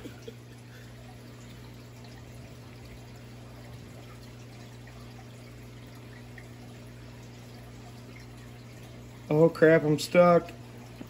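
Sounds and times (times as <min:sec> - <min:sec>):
aquarium water bubbling: 0:00.0 - 0:11.0
low steady hum: 0:00.0 - 0:11.0.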